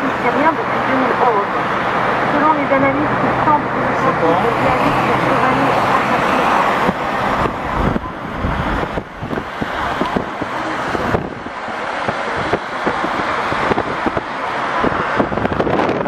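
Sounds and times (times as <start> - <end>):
road and traffic noise: 0.0 - 16.0
wind buffeting microphone: 4.5 - 16.0.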